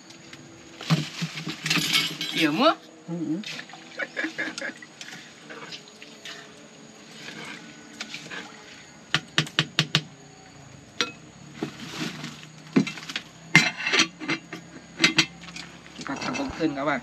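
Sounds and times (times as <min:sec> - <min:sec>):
utensils knocking against pot: 0:13.6 - 0:15.4.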